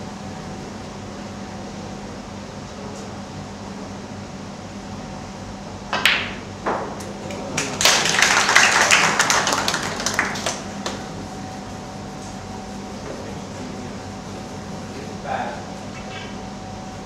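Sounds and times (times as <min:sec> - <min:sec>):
audience applause: 0:07.4 - 0:11.0.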